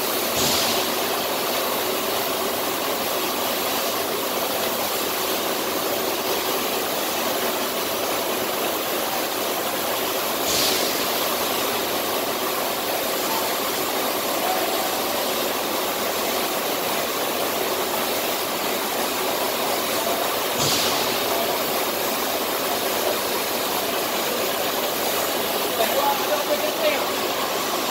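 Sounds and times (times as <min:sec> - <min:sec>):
cutting torch hissing through steel: 0:00.0 - 0:01.8, 0:10.2 - 0:19.1, 0:19.7 - 0:27.9
brief sharper hiss: 0:10.4 - 0:11.2.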